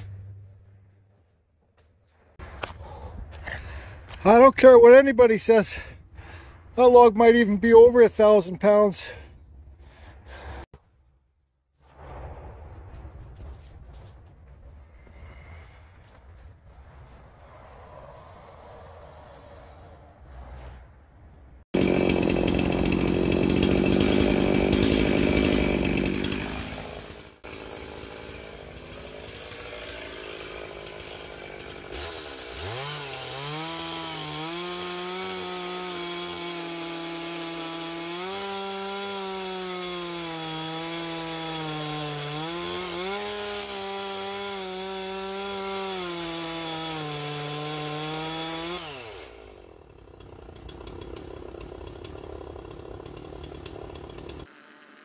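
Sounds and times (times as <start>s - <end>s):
chainsaw cutting log: 21.7s - 55.0s.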